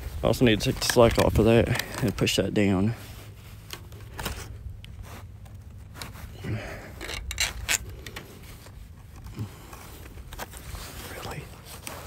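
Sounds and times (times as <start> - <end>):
wire scraping on wooden post: 6.9 - 8.5.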